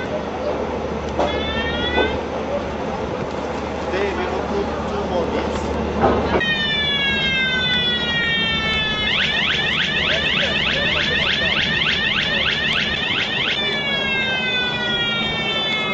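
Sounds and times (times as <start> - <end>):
electronic alarm siren: 1.2 - 2.2, 6.3 - 15.9.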